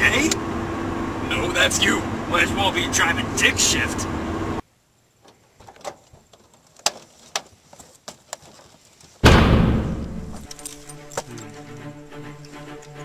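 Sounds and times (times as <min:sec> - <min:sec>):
loud boom: 0:09.2 - 0:10.4
sustained music notes: 0:10.2 - 0:13.0.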